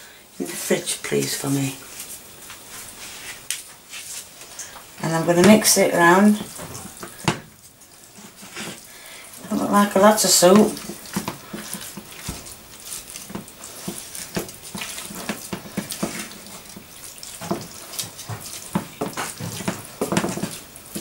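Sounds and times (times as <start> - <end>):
wooden spoon stirring wet meat: 0.3 - 21.0
wet scrapes and knocks: 5.3 - 8.9, 9.6 - 21.0.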